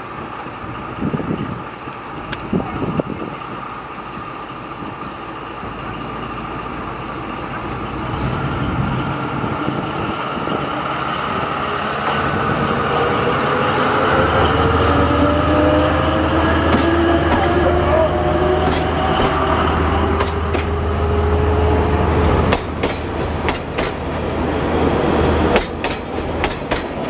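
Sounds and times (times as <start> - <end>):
diesel locomotive passing: 0.0 - 27.0
rising whine of coaches: 4.1 - 22.5.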